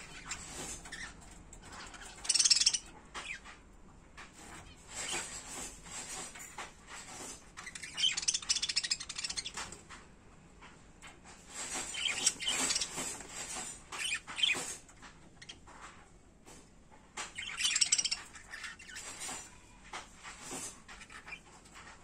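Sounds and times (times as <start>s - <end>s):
budgerigars chirping and chattering: 0.0s - 3.6s, 4.3s - 9.8s, 11.4s - 15.9s, 17.3s - 19.6s, 20.3s - 22.0s.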